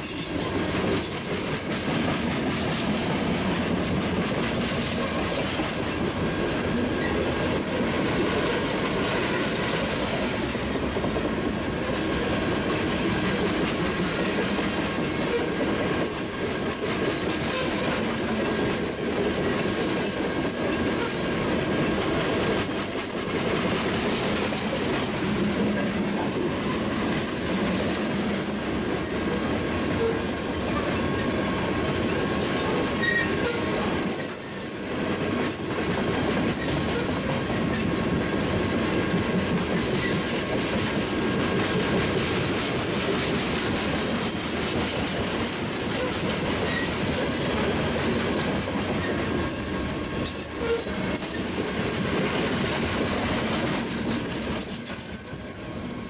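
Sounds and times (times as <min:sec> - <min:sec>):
train wheels rumbling on rails: 0:00.0 - 0:56.0
high wheel squeal: 0:32.5 - 0:34.7.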